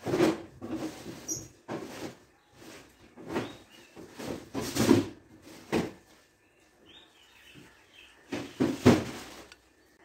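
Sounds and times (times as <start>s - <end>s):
faint bird chirps: 6.1s - 8.9s.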